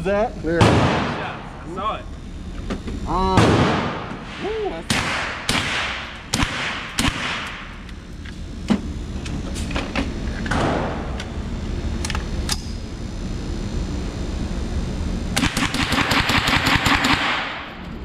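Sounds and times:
faint gunshots: 0.6s - 1.4s, 3.4s - 7.6s
loud gunshots with echo: 0.6s - 1.6s, 3.4s - 7.6s, 15.4s - 17.7s.

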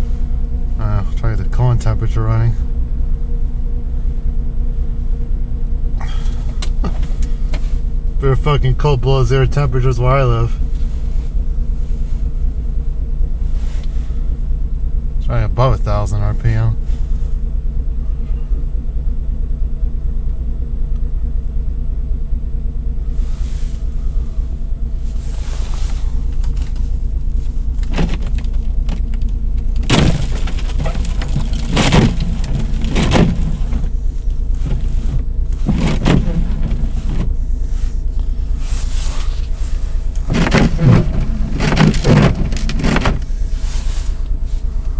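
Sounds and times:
car engine idling: 0.0s - 44.9s
jacket fabric rustling on microphone: 25.0s - 28.9s, 30.3s - 44.8s.

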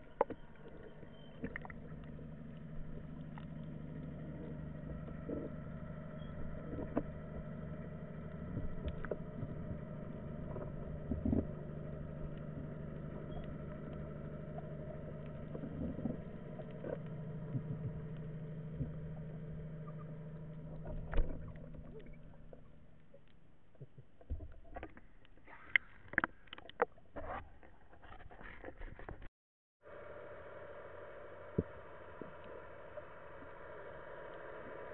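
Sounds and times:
boat engine hum underwater: 0.0s - 34.9s.

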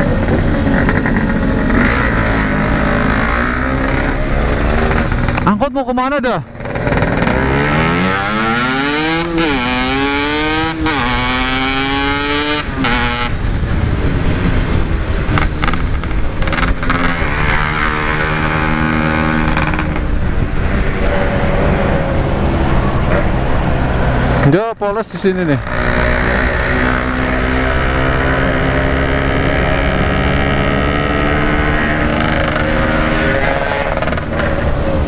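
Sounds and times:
two-stroke engine revving: 0.0s - 5.6s, 6.5s - 13.7s, 15.2s - 20.6s, 25.4s - 35.0s.

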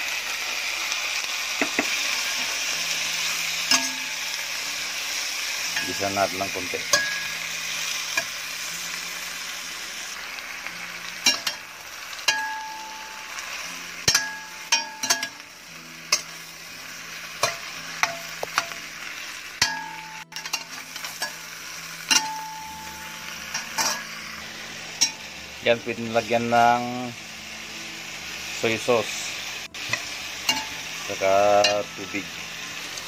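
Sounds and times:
meat sizzling in a pan: 0.0s - 33.0s
metal spoon scraping pan: 19.6s - 21.4s, 23.5s - 24.1s, 29.8s - 30.8s.

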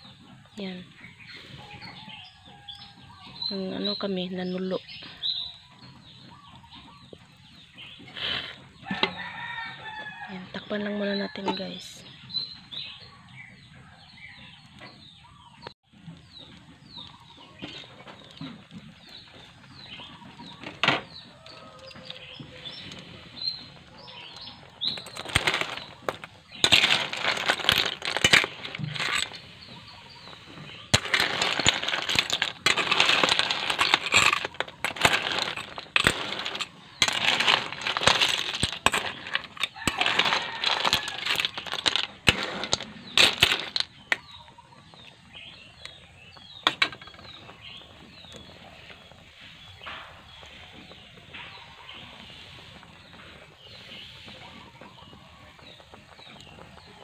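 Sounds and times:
shells clattering in metal pot: 24.1s - 44.4s, 46.6s - 47.4s.

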